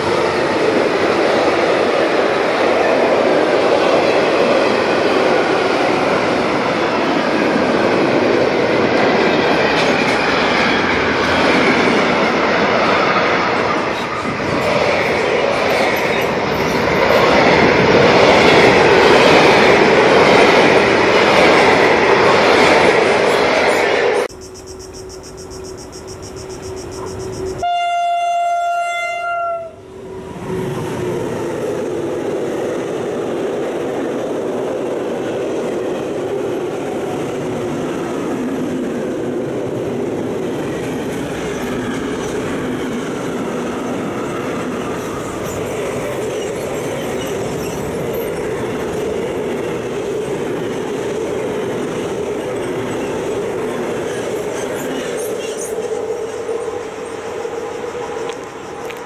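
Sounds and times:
train wagons rumbling on rails: 0:00.0 - 0:59.0
train horn blast: 0:27.6 - 0:30.1.

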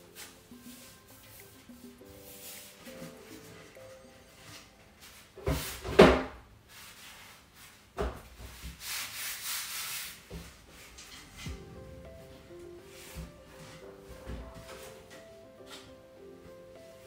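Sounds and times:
dry brush scraping: 0:00.0 - 0:05.8, 0:08.4 - 0:16.0.

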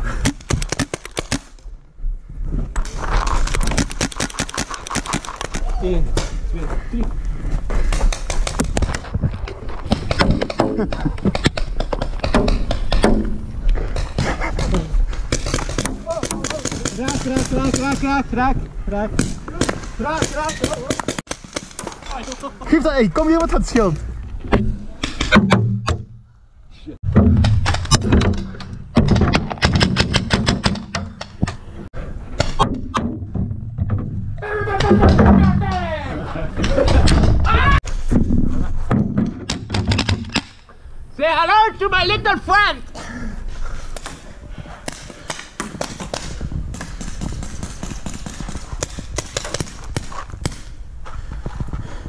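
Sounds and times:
paintball markers firing: 0:03.4 - 0:05.6, 0:44.8 - 0:50.8.

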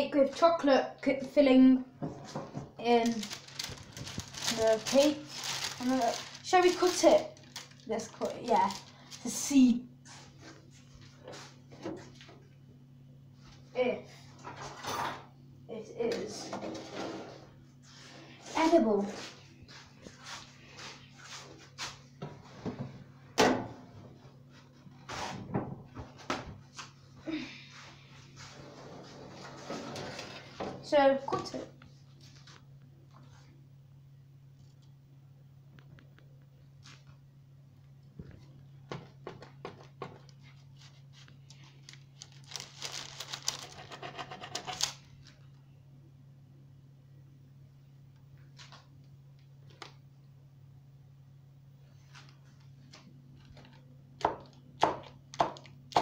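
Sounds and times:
kitchen knocks and clatters: 0:02.0 - 0:02.9.

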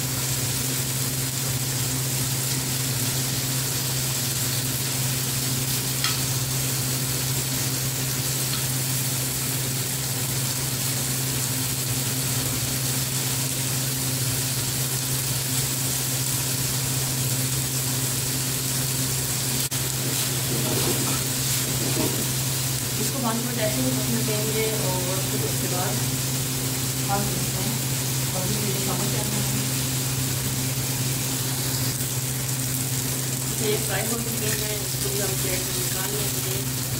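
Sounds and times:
chicken sizzling in a pan: 0:00.0 - 0:36.9
fork tick on pan: 0:06.0 - 0:06.3.

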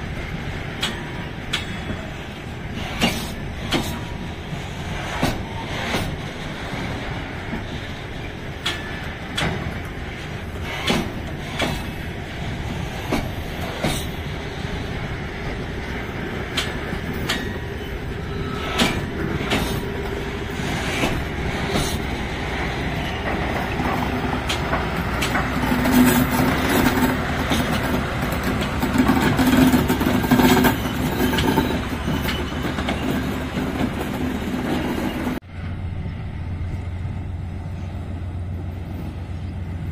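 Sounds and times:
train wheels clicking over rail joints: 0:00.0 - 0:35.4
diesel locomotive engine hum: 0:00.0 - 0:39.9.

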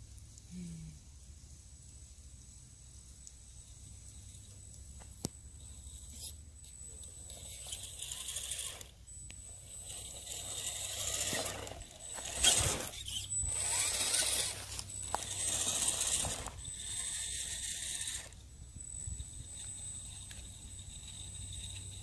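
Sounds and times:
thin high whine: 0:03.6 - 0:22.0
toy truck motor whirring: 0:05.6 - 0:22.0.

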